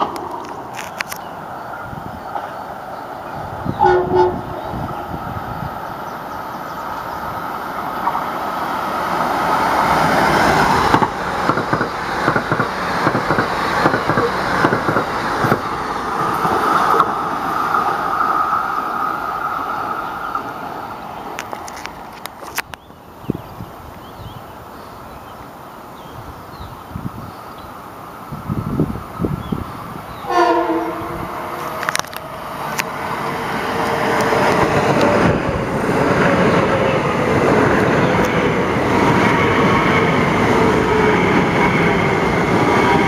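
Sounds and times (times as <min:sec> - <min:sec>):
wheels clicking over rail joints: 0:00.0 - 0:02.6, 0:06.6 - 0:23.0, 0:31.6 - 0:36.6
train passing: 0:00.0 - 0:43.0
train horn blast: 0:03.7 - 0:04.7, 0:30.2 - 0:31.9.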